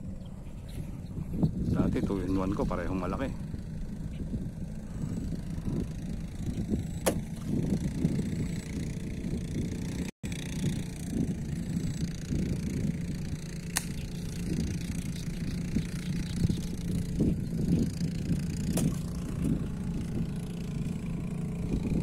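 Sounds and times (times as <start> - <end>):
steady low rumbling: 0.0 - 22.0
sharp clicks: 13.7 - 16.7.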